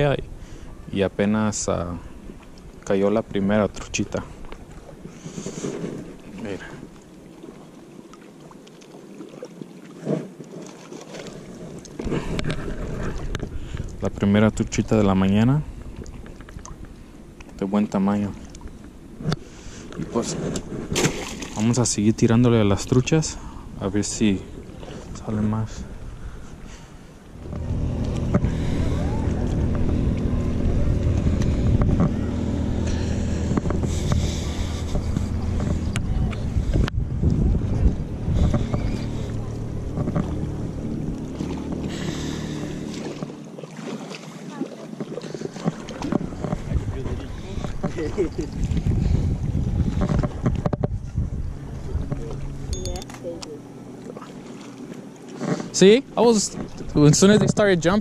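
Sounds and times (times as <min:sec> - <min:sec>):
low engine drone: 0:11.8 - 0:44.0, 0:45.4 - 0:58.0.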